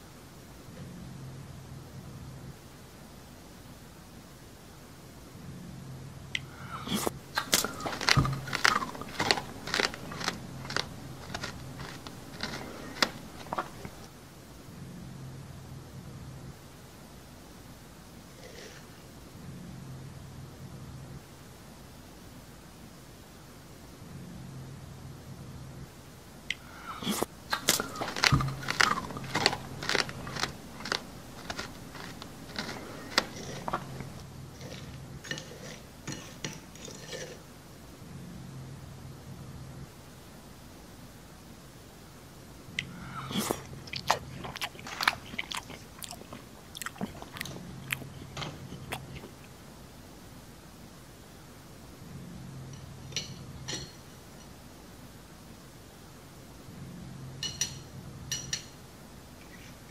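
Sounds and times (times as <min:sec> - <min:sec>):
chewing crunchy food: 0:06.4 - 0:14.1, 0:27.0 - 0:37.4, 0:42.8 - 0:49.6
metal spoon scraping ceramic plate: 0:34.7 - 0:37.4.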